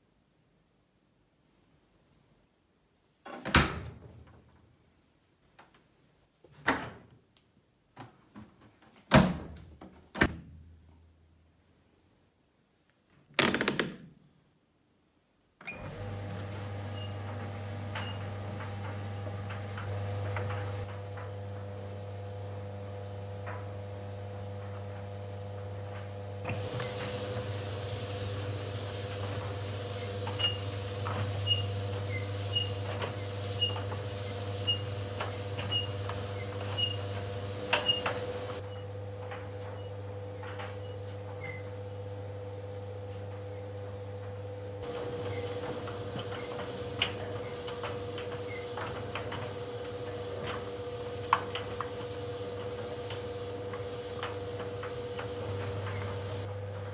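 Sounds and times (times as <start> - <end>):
tumble dryer motor hum: 15.8 - 40.8, 42.0 - 56.9.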